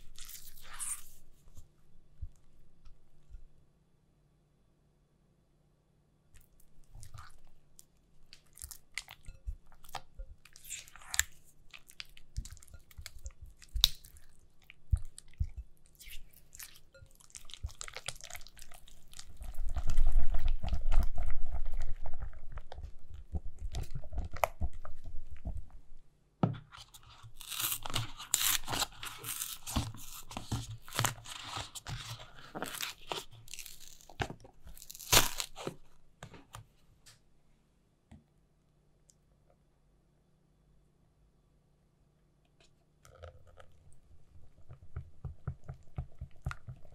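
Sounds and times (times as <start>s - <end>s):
yogurt spooned into a bowl: 6.3s - 34.8s
stirring in a glass bowl: 6.7s - 25.8s.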